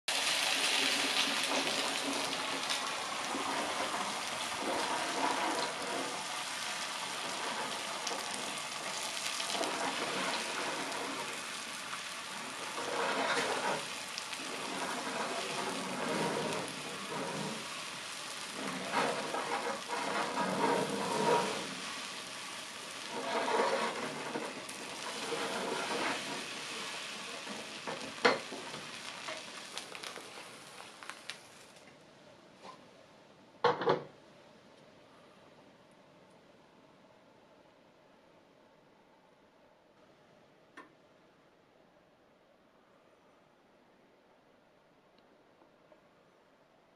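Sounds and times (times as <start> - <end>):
egg sizzling in a frying pan: 0.1 - 31.8.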